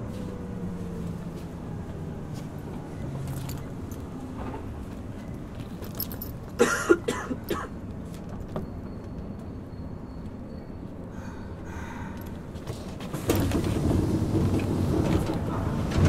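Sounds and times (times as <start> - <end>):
train wheels rumbling on rails: 0.0 - 16.0
sharp clanks and rattles: 3.2 - 9.5, 12.2 - 16.0.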